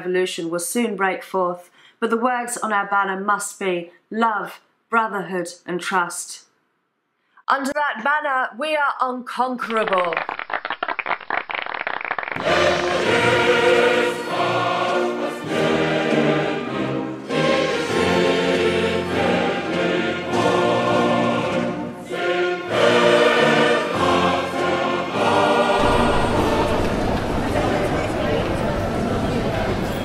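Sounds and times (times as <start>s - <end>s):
choir singing: 12.4s - 30.0s.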